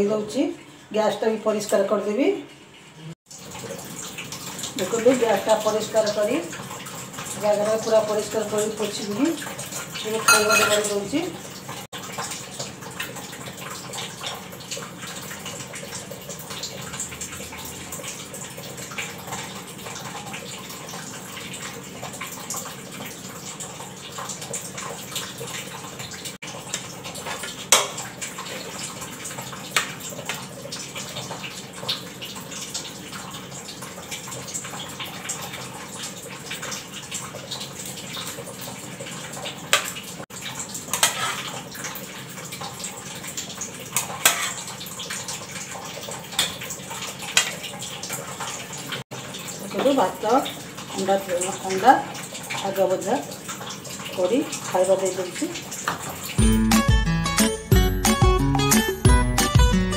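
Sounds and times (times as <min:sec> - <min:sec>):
spoons clinking against pots: 0:10.1 - 0:11.1, 0:44.0 - 0:44.7.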